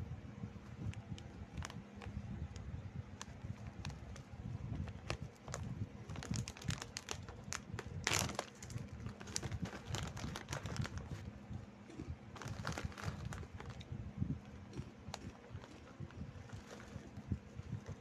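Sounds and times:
plastic bag crinkling: 3.5s - 11.3s, 12.3s - 13.8s, 14.7s - 18.0s.

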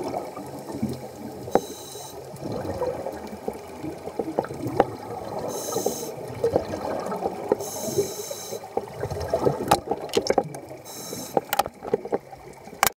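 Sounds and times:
exhaled air bubbling: 0.0s - 12.9s
regulator hissing inhalations: 1.5s - 2.3s, 5.5s - 6.3s, 7.6s - 8.8s, 10.8s - 11.5s.

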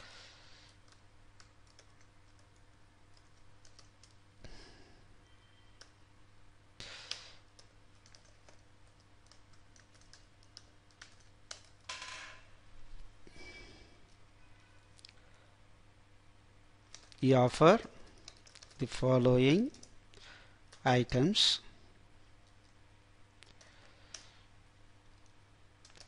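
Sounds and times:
steady low hum: 0.0s - 26.0s
faint typing on keyboard: 0.6s - 4.3s, 5.6s - 6.0s, 6.8s - 11.9s, 16.8s - 17.2s, 17.8s - 21.4s, 22.2s - 22.8s, 23.4s - 24.4s, 25.1s - 26.0s.

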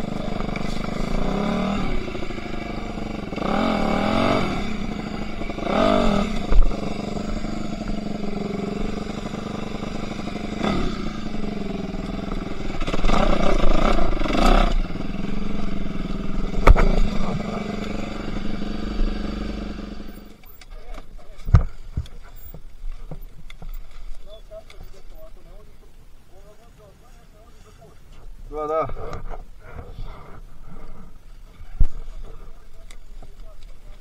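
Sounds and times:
motorcycle engine revving: 0.0s - 20.5s.

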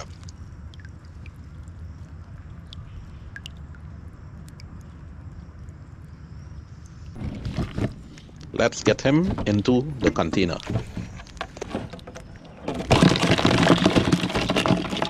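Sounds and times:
water dripping and trickling: 0.0s - 7.2s
low steady rumble: 0.0s - 14.4s.

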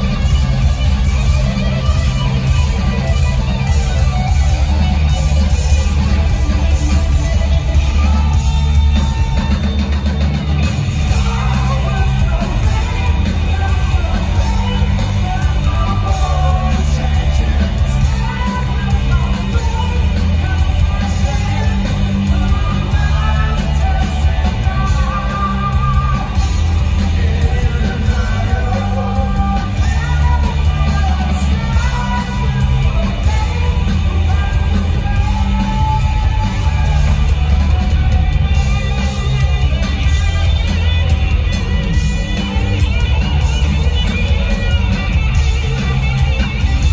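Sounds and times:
live rock band playing: 0.0s - 46.9s.

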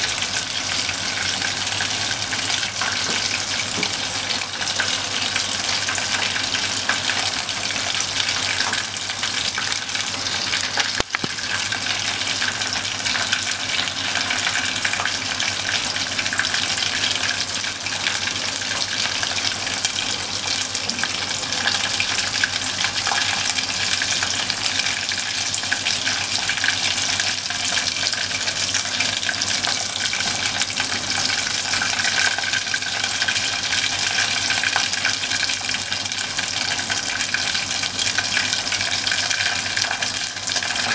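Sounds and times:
meat sizzling in hot oil: 0.0s - 40.9s.

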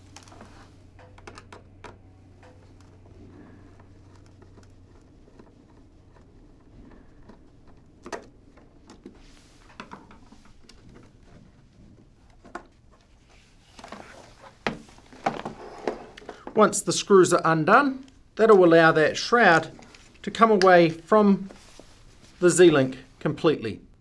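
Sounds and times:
fabric rustling: 21.4s - 22.6s.

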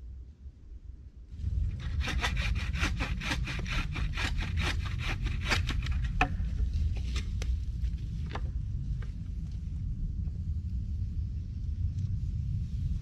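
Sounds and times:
hand saw cutting wood: 1.8s - 6.2s.

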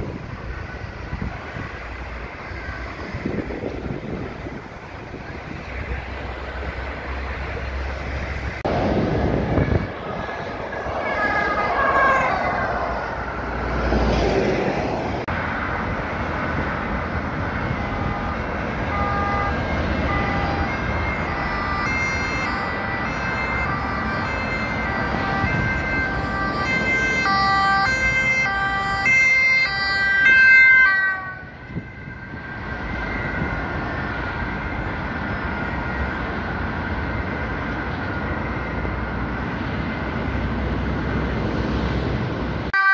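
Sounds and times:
motorway traffic: 0.0s - 42.9s
two-tone emergency sirens: 8.6s - 14.1s, 15.3s - 40.1s, 42.7s - 42.9s.

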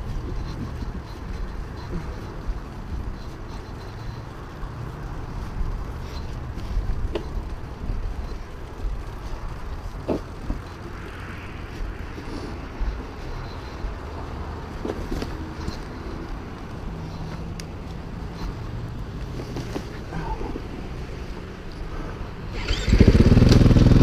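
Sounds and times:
motorcycle engine at low revs: 22.6s - 24.0s.

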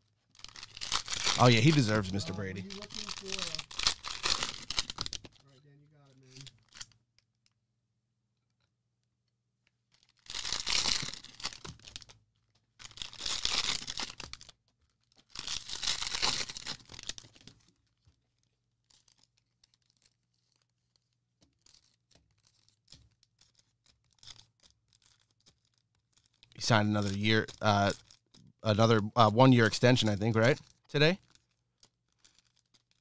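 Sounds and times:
cellophane tearing and crinkling: 0.0s - 5.5s, 9.9s - 12.2s, 12.8s - 28.4s, 30.4s - 33.0s.

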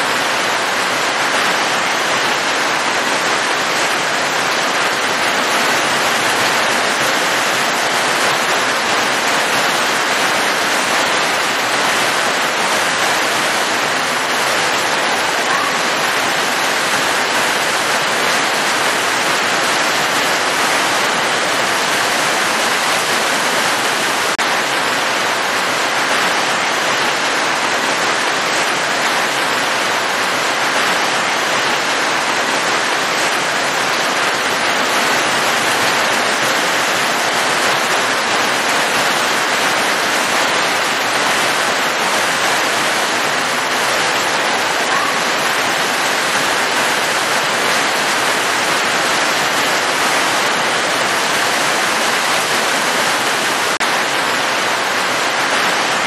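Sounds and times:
heavy rain: 0.0s - 56.0s.

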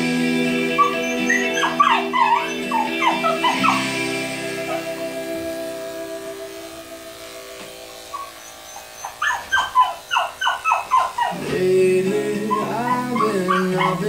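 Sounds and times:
background music: 0.0s - 8.4s, 11.3s - 14.0s
dog yelping: 0.7s - 5.1s, 8.1s - 11.5s, 12.5s - 14.0s.

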